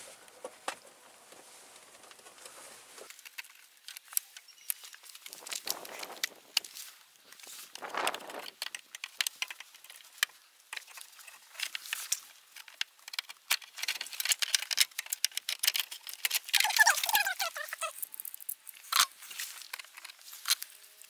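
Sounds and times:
clicks taps and rustling: 3.1s - 20.7s
wavering squeak: 16.6s - 18.2s.

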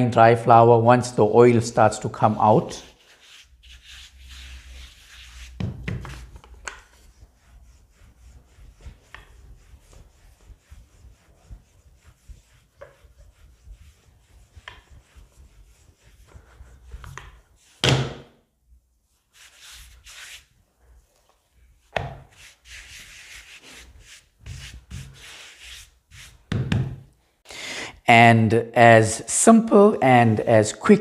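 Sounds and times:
hands rubbing flour on dough: 2.6s - 17.8s, 19.0s - 26.6s
rolling pin rolling dough: 3.0s - 18.2s, 21.9s - 27.0s.

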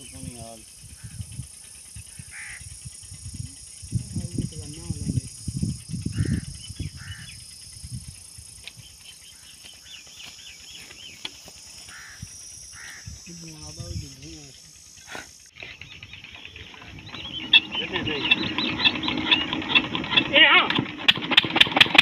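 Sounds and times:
birds chirping: 0.0s - 20.8s
high insect buzz: 0.9s - 15.5s.

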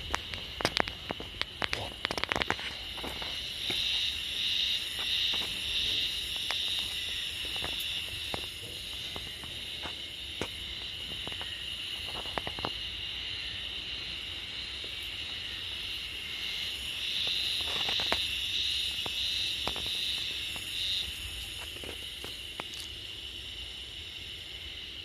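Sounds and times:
footsteps on hard paving: 0.0s - 12.8s
high-pitched insect buzz: 0.0s - 24.8s.

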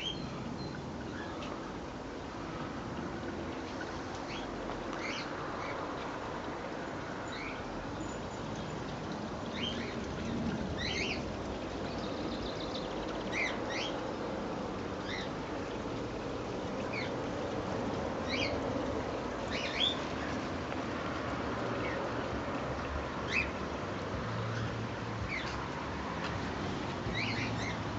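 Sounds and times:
steady background noise: 0.0s - 27.9s
birds chirping: 27.1s - 27.8s.

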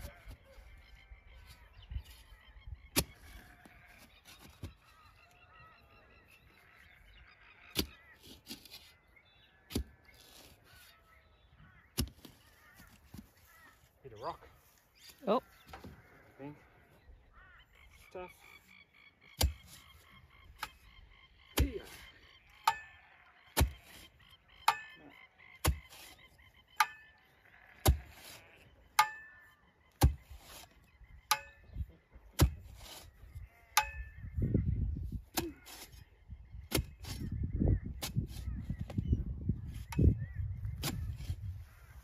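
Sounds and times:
digging tool striking rocky ground: 12.0s - 12.4s, 19.4s - 19.9s, 23.6s - 25.0s, 25.6s - 26.2s, 27.8s - 28.4s, 29.0s - 29.4s, 30.0s - 30.7s, 31.3s - 34.2s, 40.8s - 41.4s
rough scraping: 25.6s - 29.4s, 30.0s - 31.6s, 32.4s - 34.2s, 35.1s - 36.1s.

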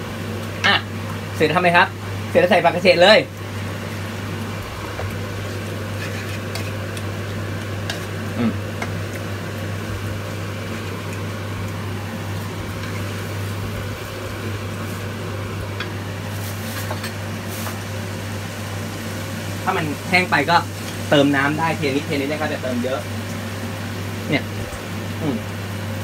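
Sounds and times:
light sizzle: 0.0s - 26.0s
steady low hum: 0.0s - 26.0s
spatula scraping noodles in pan: 5.4s - 7.0s.

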